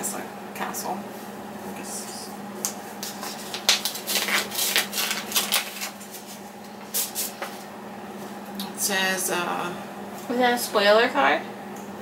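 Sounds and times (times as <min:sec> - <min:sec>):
paper rustling and crinkling: 0:02.9 - 0:07.7.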